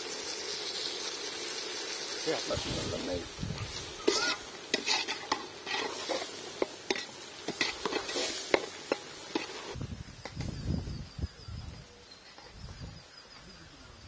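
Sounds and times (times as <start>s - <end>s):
oil sizzling faintly: 0.0s - 10.6s
metal ladle scraping pot: 3.6s - 9.8s.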